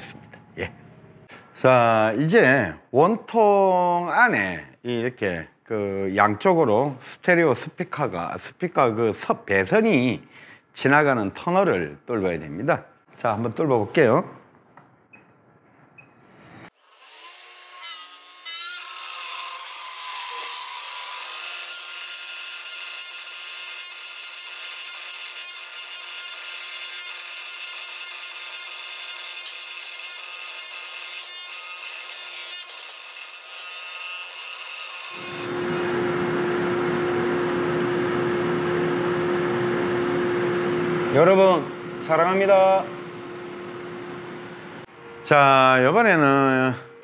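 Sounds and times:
wood cutting noise: 16.7s - 46.9s
router motor whine: 32.6s - 41.9s
low steady hum: 35.4s - 47.0s.

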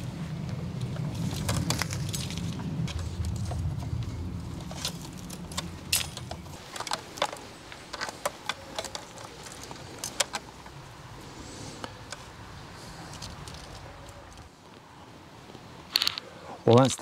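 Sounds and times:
low rumble: 0.0s - 6.6s
wires clicking and rattling: 0.8s - 11.0s.

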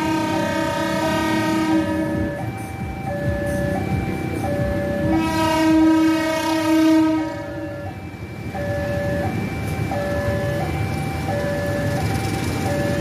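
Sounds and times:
train horn blast: 0.0s - 2.3s, 5.1s - 7.7s.

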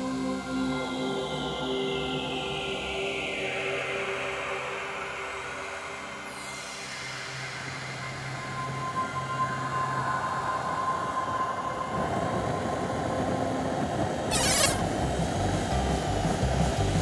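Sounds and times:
cartoon hum: 14.3s - 14.8s
short sharp hiss: 14.3s - 14.9s
background music with steady beat: 14.8s - 17.0s.

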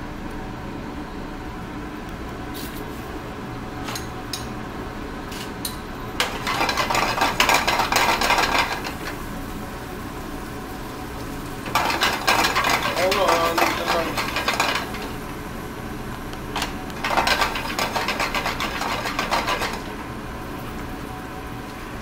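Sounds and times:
utensils clinking: 6.2s - 9.2s, 11.7s - 15.1s, 16.6s - 19.9s
food sizzling in skillet: 6.2s - 21.8s.

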